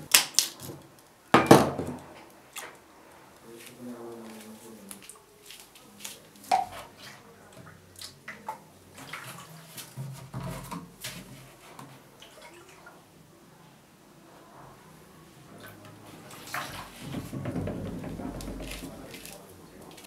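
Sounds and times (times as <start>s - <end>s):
water sloshing and dripping: 2.2s - 2.9s, 4.2s - 13.2s, 15.5s - 20.0s
plastic jug knocking: 17.0s - 19.4s.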